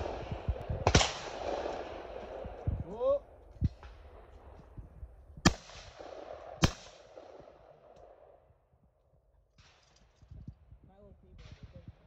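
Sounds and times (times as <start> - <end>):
shotgun shots echoing: 0.0 - 2.8, 5.4 - 8.4.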